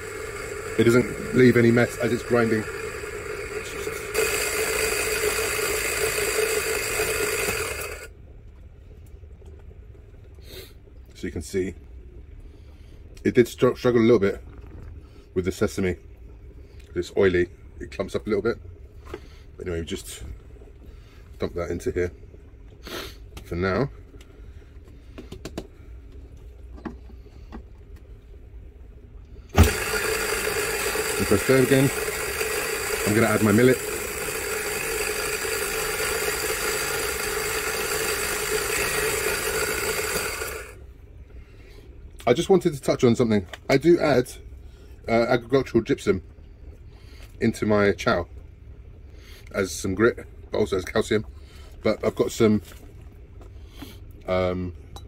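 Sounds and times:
electric coffee grinder grinding: 0.0s - 8.1s, 29.6s - 40.8s
low steady hum: 0.0s - 55.0s.

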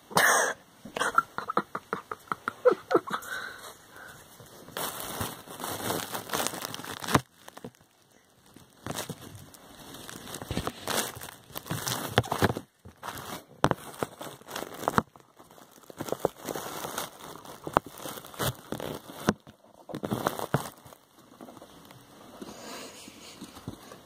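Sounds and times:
wood shavings rustling: 4.4s - 21.9s.

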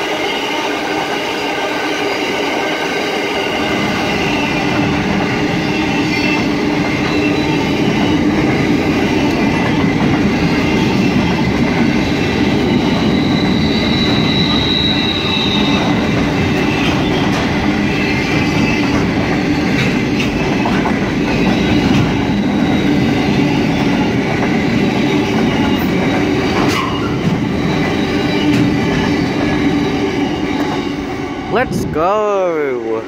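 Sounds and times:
train wheels rumbling on rail: 0.0s - 33.0s
high wheel squeal: 12.0s - 20.4s, 21.2s - 31.2s.

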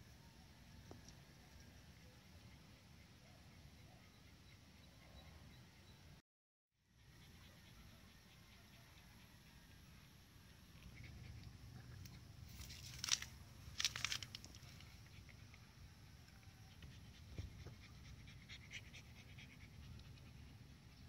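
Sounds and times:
puppy panting: 7.0s - 9.6s, 14.8s - 21.0s.

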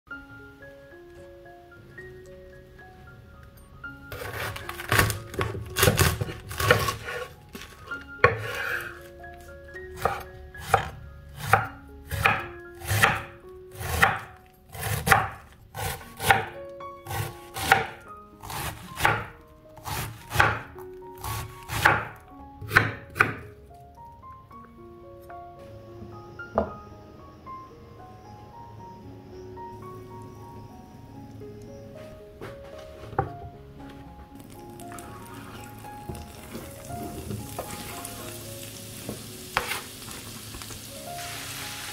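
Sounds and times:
knife slicing cabbage: 4.1s - 9.1s, 10.0s - 23.5s.

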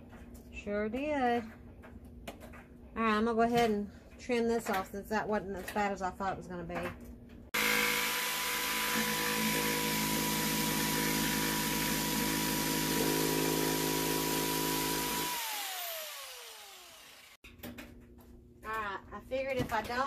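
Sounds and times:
jigsaw cutting wood: 7.6s - 17.4s.

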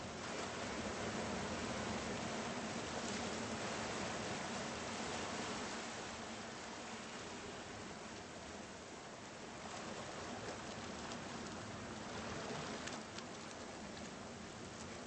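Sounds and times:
small waves washing on sand: 0.0s - 15.0s
faint crackles: 9.6s - 15.0s.

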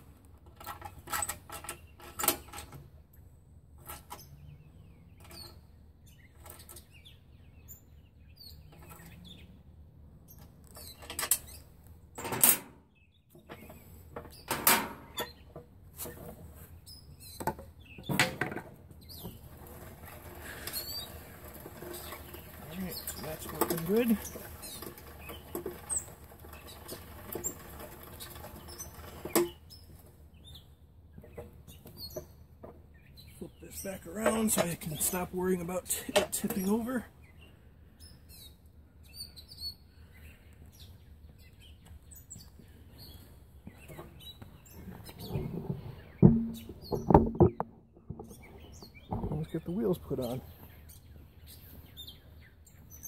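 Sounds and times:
pedal tractor chain clicks and squeaks: 0.5s - 2.9s, 10.3s - 11.7s, 19.0s - 30.6s, 33.7s - 37.0s
metal frame knocks and scrapes: 17.4s - 29.6s, 43.7s - 49.6s
knock: 46.2s - 47.6s.

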